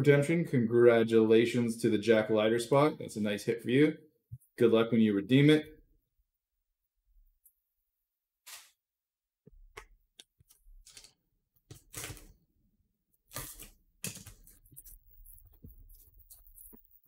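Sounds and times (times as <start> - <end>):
plastic wrap crinkling and tearing: 10.8 - 12.4, 13.3 - 16.8.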